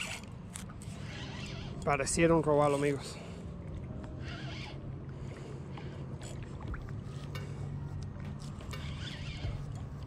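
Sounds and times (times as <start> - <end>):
steady low hum: 0.0 - 10.0
lapping water: 5.1 - 8.4.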